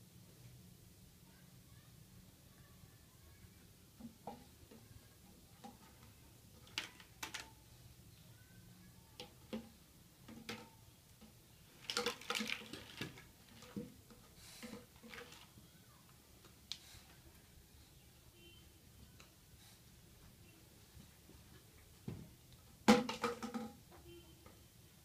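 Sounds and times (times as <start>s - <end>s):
plastic knocks and clatters: 4.0s - 4.9s, 9.2s - 15.5s, 22.0s - 24.2s.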